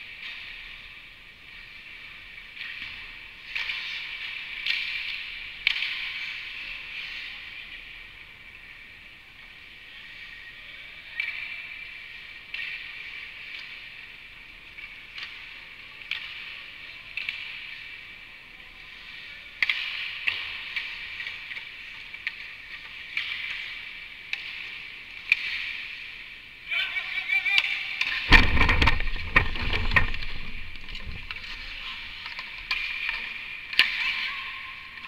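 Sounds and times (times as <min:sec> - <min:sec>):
hockey sticks and pucks clacking: 0:00.0 - 0:35.0
skate blades scraping ice: 0:29.0 - 0:34.2.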